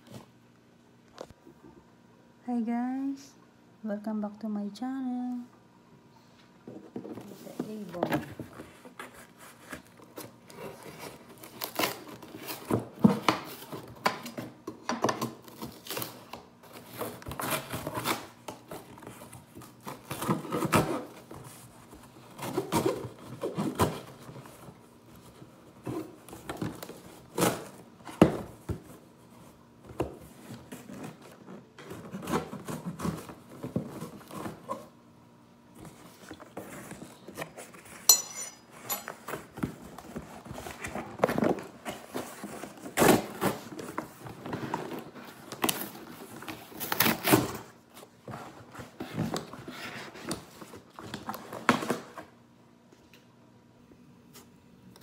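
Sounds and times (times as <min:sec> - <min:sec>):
packing tape cut and torn: 0:10.2 - 0:14.4
cardboard flaps scraping and rustling: 0:35.7 - 0:38.0.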